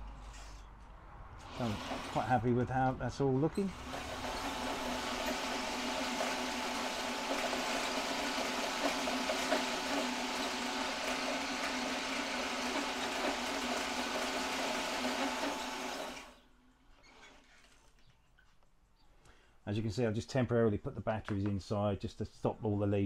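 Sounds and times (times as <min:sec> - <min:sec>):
electric motors humming: 0:01.4 - 0:02.4, 0:03.6 - 0:16.4.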